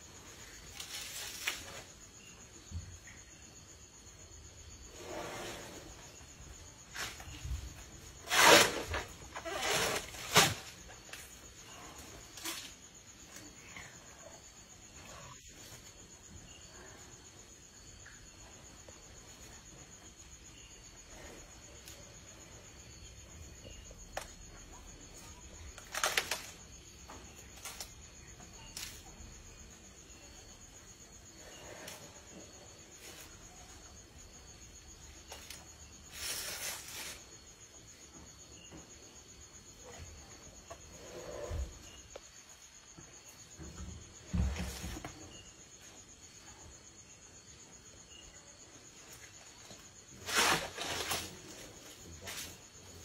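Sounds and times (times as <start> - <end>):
crickets trilling: 0.0 - 53.0
crunching crash of wood and leaves: 50.2 - 52.5.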